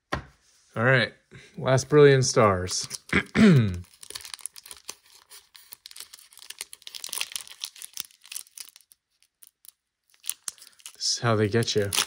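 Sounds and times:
foil wrapper crinkling and tearing: 2.6 - 12.0.

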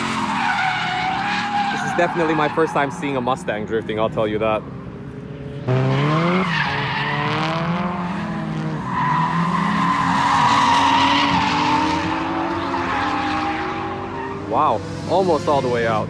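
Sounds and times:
tyre squeal and skidding: 0.0 - 3.4, 5.7 - 14.8
car engines revving: 0.0 - 16.0.

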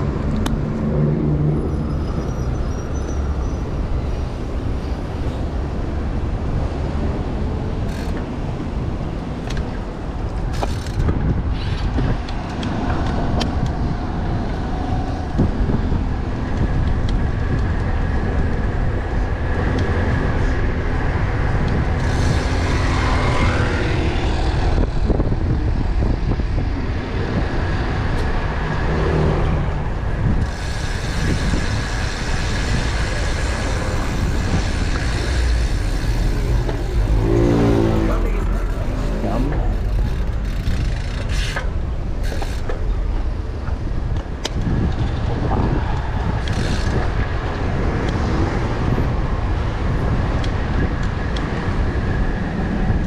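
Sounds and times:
cars and trucks passing: 0.0 - 53.0
wind rumble on microphone: 0.0 - 53.0
pitched vehicle sound passing: 32.7 - 41.4.

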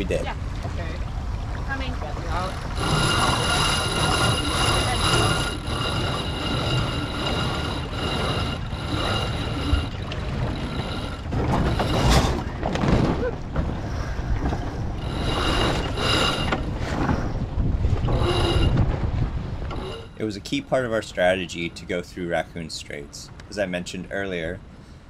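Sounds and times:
wind buffeting microphone: 0.0 - 20.7
water rushing past hull: 0.0 - 21.3
high whine: 2.4 - 12.5, 15.0 - 17.3, 18.0 - 19.0.

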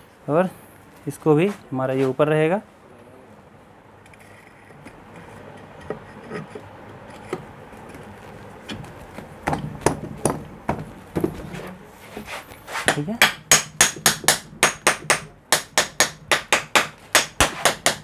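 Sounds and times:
sharp metal knocks: 12.9 - 18.0.

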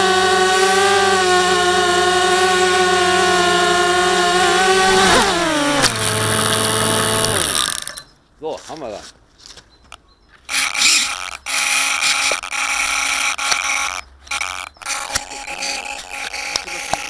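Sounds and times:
camera handling rubbing and rustling: 9.1 - 17.0.

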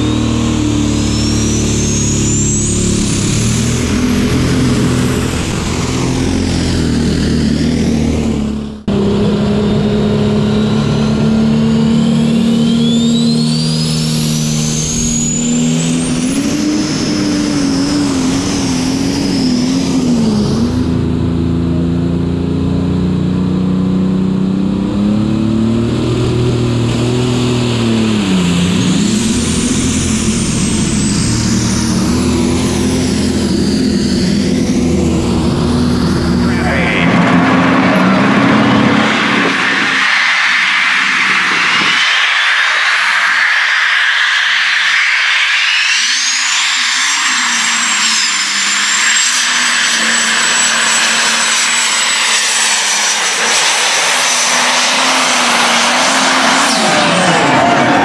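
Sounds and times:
turbo whistle: 0.0 - 3.9, 11.7 - 17.0
diesel tractor engine under load: 0.0 - 40.0.

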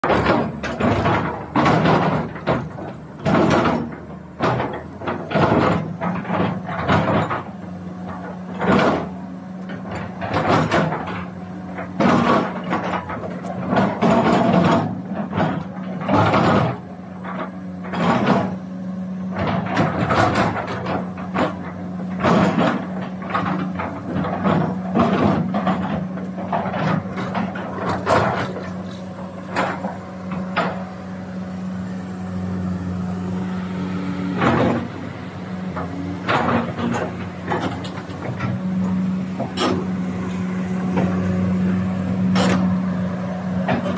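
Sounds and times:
excavator clanks and knocks: 0.0 - 43.9
excavator diesel engine humming: 0.0 - 43.9.

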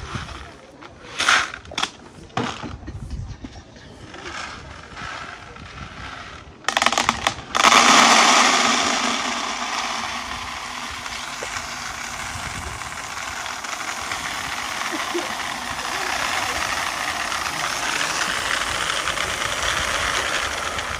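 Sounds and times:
beans rattling into plastic bucket: 1.1 - 2.7, 4.1 - 20.9.

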